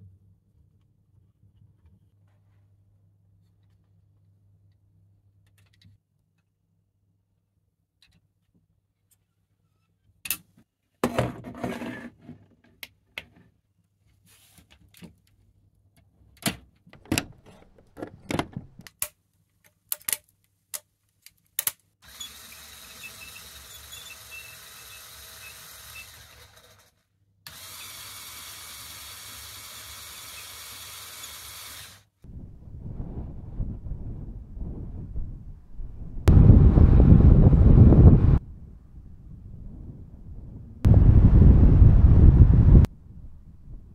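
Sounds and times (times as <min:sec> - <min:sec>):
plastic parts clicking together: 0:16.4 - 0:21.9
electric motor whining: 0:22.0 - 0:26.9, 0:27.5 - 0:32.1.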